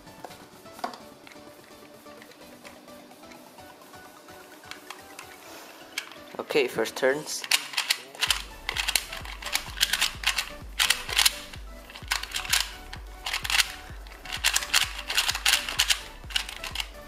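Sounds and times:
plastic puzzle cube clicking: 4.6s - 6.4s, 7.4s - 17.0s.

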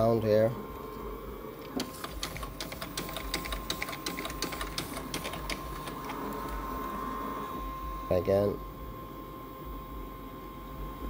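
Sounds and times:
scanner motor whine: 0.0s - 11.0s
scanner sharp clicks: 1.6s - 6.6s.

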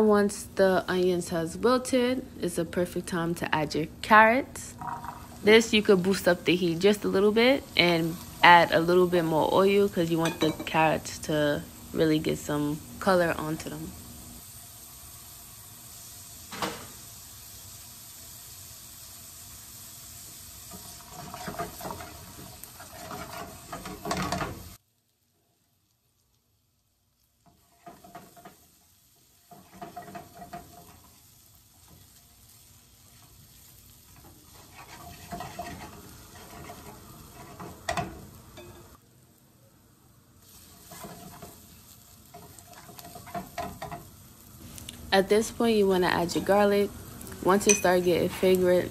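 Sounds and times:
vegetables sizzling in oil: 0.0s - 48.9s
spatula scraping pan: 20.6s - 24.7s, 27.4s - 38.8s, 40.4s - 44.2s.

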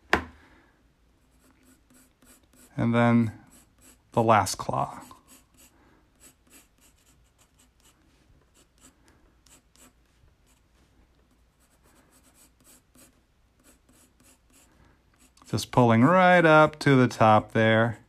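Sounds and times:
pencil scratching on paper: 1.2s - 10.7s, 11.3s - 16.1s.

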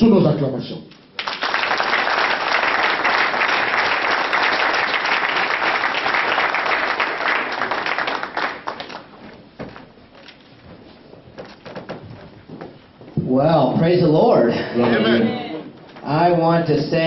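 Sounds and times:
audience applauding: 1.2s - 9.3s.

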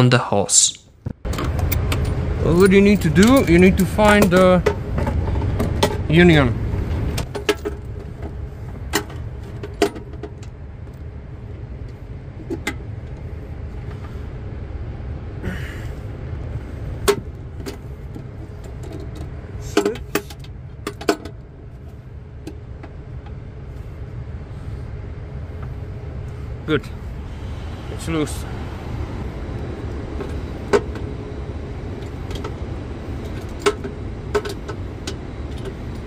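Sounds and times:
low rumble: 20.4s - 36.0s.

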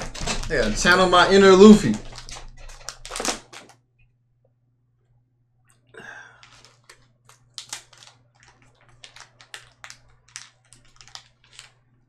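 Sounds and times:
plastic wrapper crackling: 0.0s - 3.8s, 6.2s - 12.0s.

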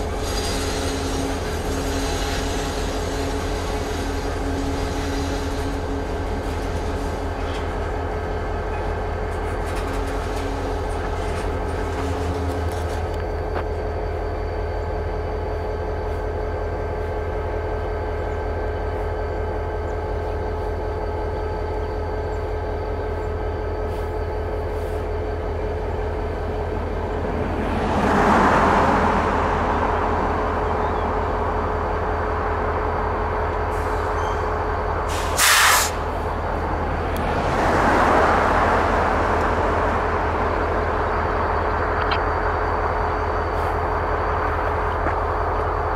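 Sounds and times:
diesel locomotives idling: 0.0s - 45.9s
air hissing: 35.1s - 36.2s.

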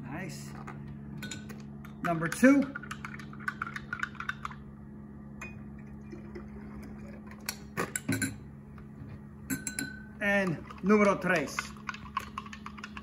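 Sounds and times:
steady low hum: 0.0s - 13.0s
cup and glassware clinking: 7.3s - 8.5s, 9.5s - 10.6s.

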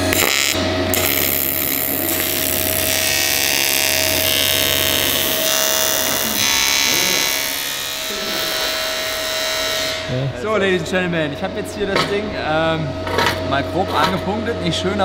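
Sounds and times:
welding arc buzzing hiss: 0.0s - 10.1s.

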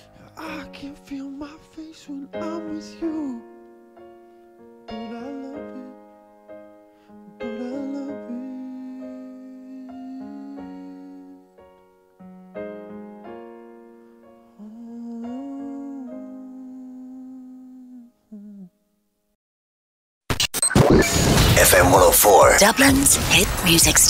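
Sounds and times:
wordless voice singing: 0.0s - 3.6s, 4.9s - 6.1s, 7.3s - 11.5s, 14.6s - 18.7s
slow keyboard chords: 0.0s - 19.0s.

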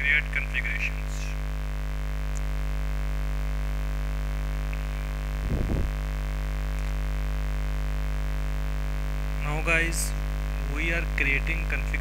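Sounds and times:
electrical mains hum: 0.0s - 12.0s
low rough noise: 4.4s - 7.0s.

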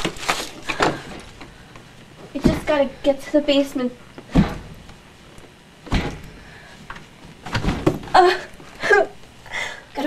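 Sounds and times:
dull thumps: 4.2s - 5.0s, 5.8s - 8.3s
woman moaning and breathing: 8.1s - 10.0s.

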